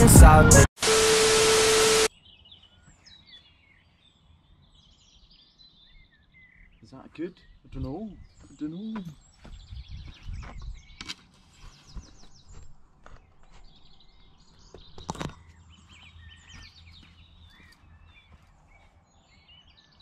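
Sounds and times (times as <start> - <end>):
birds singing and chirping: 2.1 - 20.0
wind rumble on microphone: 9.5 - 11.0.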